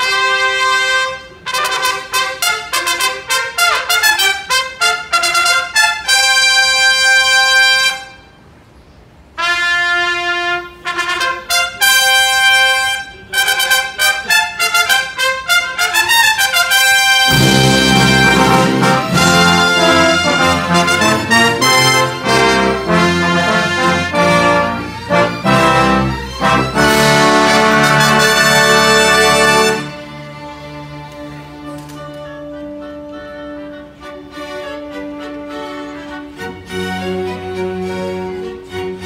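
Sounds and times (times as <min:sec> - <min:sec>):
trombones and brass: 0:00.0 - 0:08.5, 0:09.3 - 0:30.7, 0:31.5 - 0:39.0
trumpet fanfare: 0:00.0 - 0:08.5, 0:09.3 - 0:30.4.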